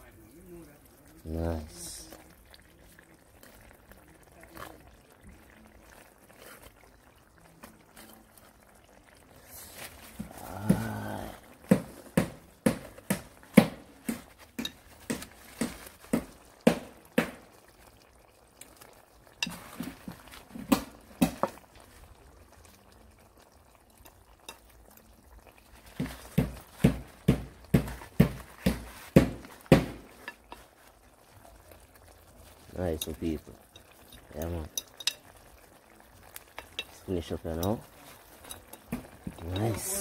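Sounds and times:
metal fork tapping a pot: 0:33.7 - 0:35.3, 0:36.5 - 0:36.9.

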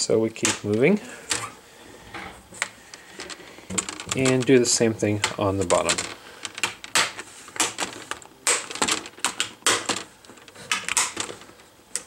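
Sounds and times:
plastic clips snapping loose: 0:05.2 - 0:12.0.

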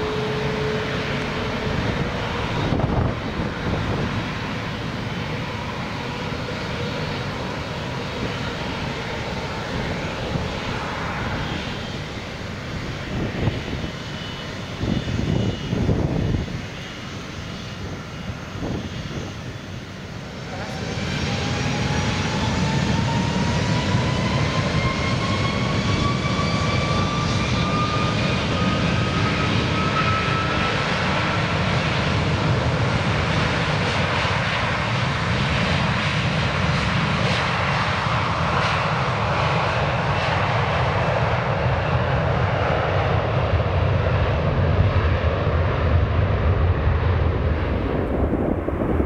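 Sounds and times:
jet engines spooling up: 0:00.0 - 0:49.0
jet roar: 0:00.0 - 0:49.0
deep rumble: 0:45.8 - 0:49.0.

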